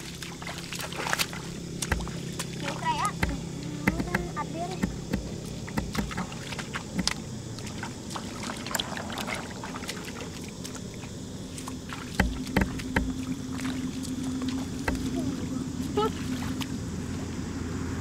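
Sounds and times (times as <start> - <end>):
water splashing and sloshing: 0.0 - 18.0
louder knocks: 3.2 - 6.4, 12.2 - 13.2.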